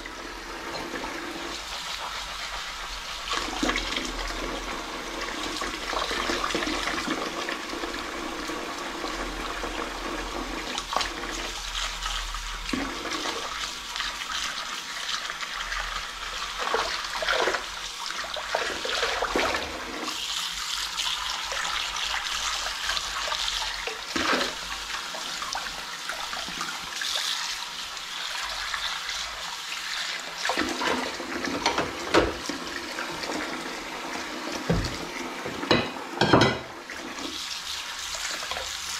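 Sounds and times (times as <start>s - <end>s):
sponge scrubbing bowl: 0.7s - 35.8s, 36.9s - 38.9s
tap running into sink: 30.5s - 33.5s, 34.5s - 37.3s
dishes clinking: 35.6s - 36.8s.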